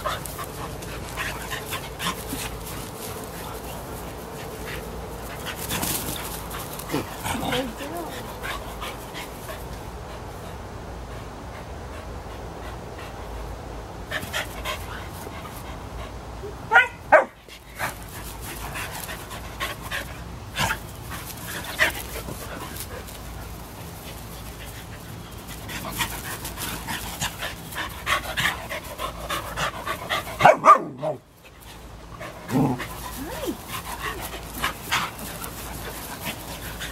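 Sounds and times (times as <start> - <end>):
dogs scuffling on grass: 0.0 - 10.6, 17.4 - 30.5, 31.3 - 36.9
dogs panting: 0.0 - 16.4, 17.4 - 36.9
dog barks: 16.7 - 17.4, 30.4 - 31.2.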